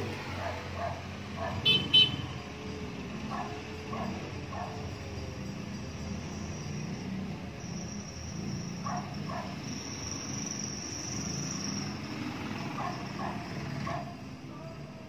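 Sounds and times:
high-pitched insect drone: 2.3s - 13.2s.

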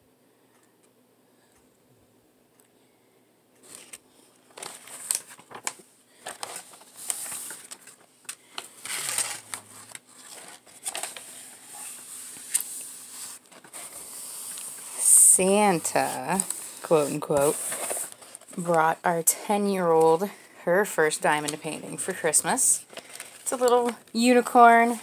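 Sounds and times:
plastic crinkling and rustling: 3.6s - 19.0s, 21.2s - 25.0s.

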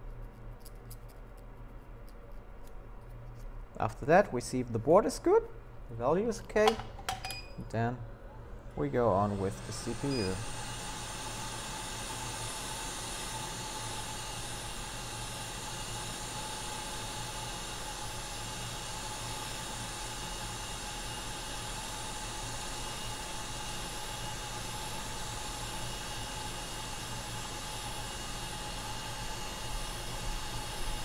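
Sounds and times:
thin steady whine: 1.8s - 31.0s
hot air blower hissing: 8.7s - 31.0s.

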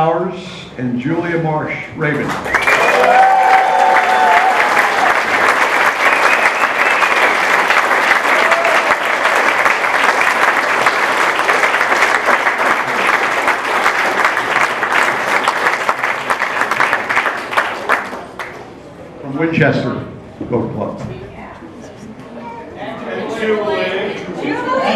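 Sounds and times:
audience applauding: 2.2s - 18.7s.

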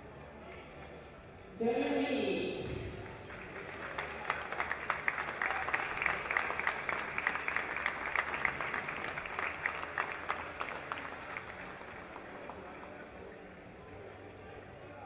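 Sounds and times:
crowd applauding: 3.0s - 13.5s.

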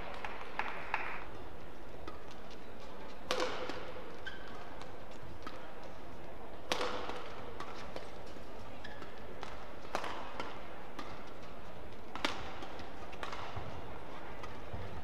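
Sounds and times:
indoor hall murmur: 0.0s - 15.0s
rackets striking shuttlecock: 3.2s - 5.9s, 6.6s - 15.0s.

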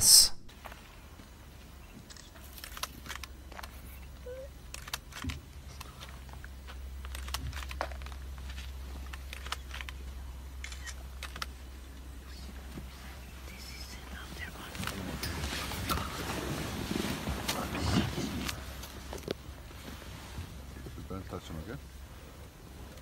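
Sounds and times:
clicks and rustles: 2.0s - 4.0s, 4.7s - 11.6s.

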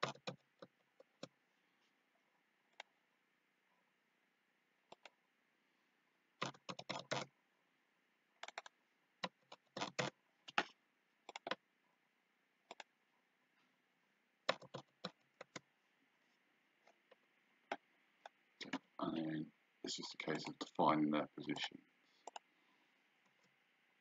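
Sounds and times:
mouse and keyboard clicking: 6.4s - 7.3s, 8.4s - 11.6s, 12.7s - 12.9s, 14.5s - 15.6s, 22.2s - 22.5s.

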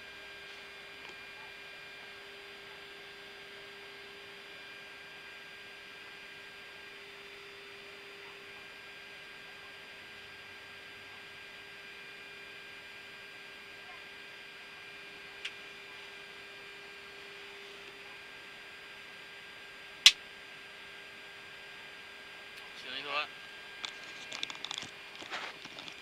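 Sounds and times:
cockpit hum and hiss: 13.3s - 26.0s.

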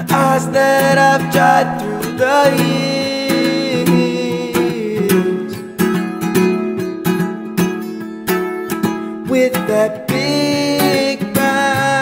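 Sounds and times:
man singing: 0.0s - 6.3s, 9.1s - 12.0s
acoustic guitar strumming: 0.0s - 12.0s.

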